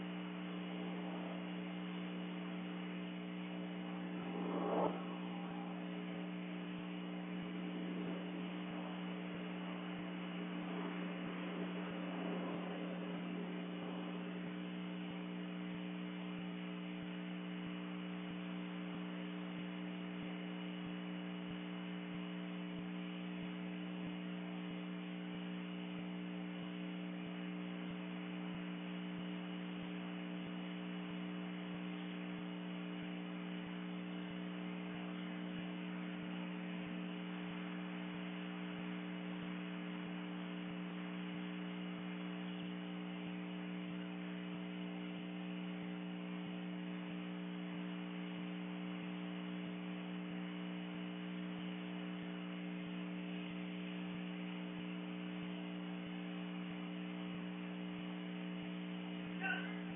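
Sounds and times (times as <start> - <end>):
even hiss: 0.0 - 15.2
electrical hum: 0.0 - 59.9.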